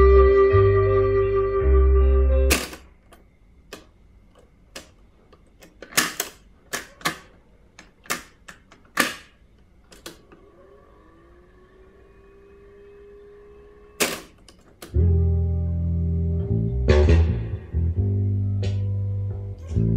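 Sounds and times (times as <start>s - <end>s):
faint tone sliding up: 10.2s - 14.0s.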